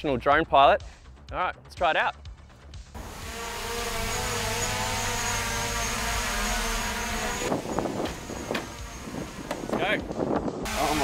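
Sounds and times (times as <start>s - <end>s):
drone propellers whirring: 3.0s - 11.0s.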